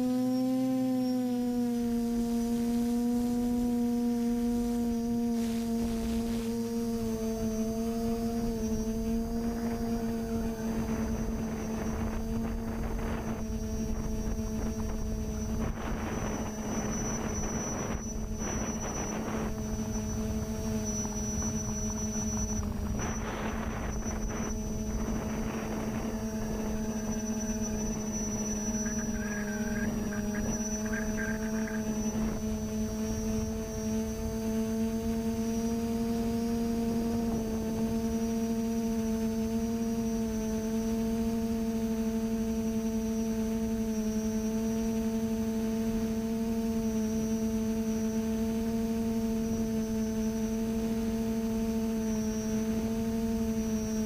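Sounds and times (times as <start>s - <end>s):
quadcopter motors humming: 0.0s - 54.0s
wind noise on microphone: 3.4s - 41.4s.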